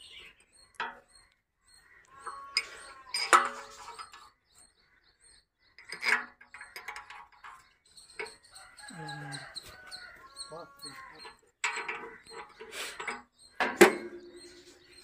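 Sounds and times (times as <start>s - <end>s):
chicken calling: 1.9s - 4.2s, 8.5s - 11.4s
steel bolts clinking: 2.2s - 4.3s, 5.8s - 8.5s, 11.2s - 15.0s.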